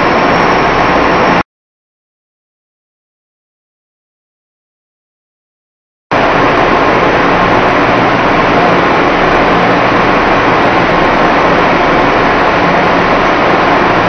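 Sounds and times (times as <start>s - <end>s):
dyeing machines running: 0.0s - 1.4s, 6.1s - 14.0s.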